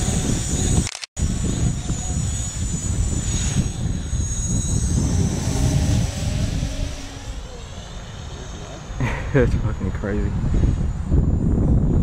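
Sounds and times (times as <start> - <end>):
drone propellers whining: 0.0 - 9.5
wind buffeting microphone: 0.0 - 12.0.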